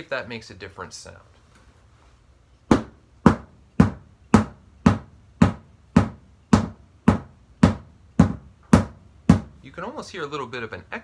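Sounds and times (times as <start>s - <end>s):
stick beating cardboard box: 2.7s - 9.6s.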